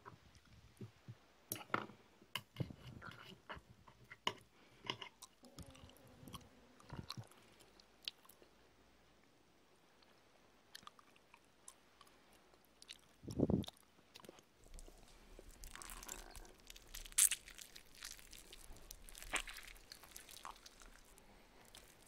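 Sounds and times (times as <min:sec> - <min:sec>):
crunchy fruit chewing: 0:12.8 - 0:22.0.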